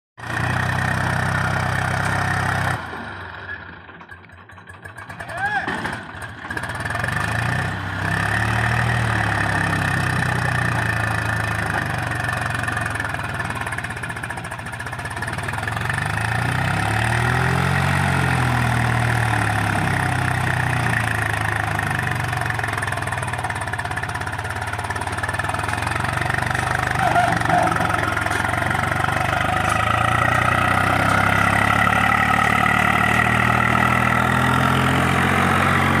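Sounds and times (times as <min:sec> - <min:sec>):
tractor diesel engine under load: 0:00.2 - 0:36.0.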